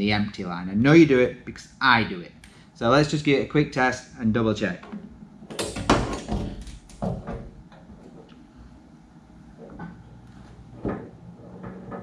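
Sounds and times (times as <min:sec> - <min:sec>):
metal knocks and clatters: 0:04.9 - 0:08.2.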